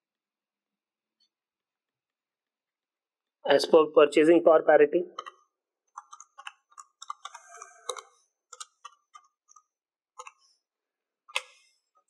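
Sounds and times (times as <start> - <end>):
calculator keys clicking: 6.0 - 9.6, 10.2 - 10.4.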